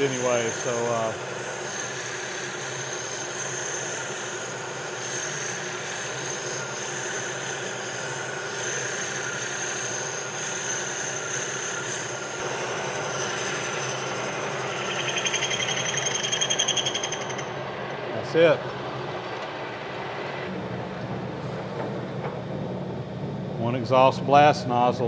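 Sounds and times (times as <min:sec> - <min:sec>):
boring bar cutting metal: 0:00.0 - 0:17.6
metal lathe gear whine: 0:00.0 - 0:20.5.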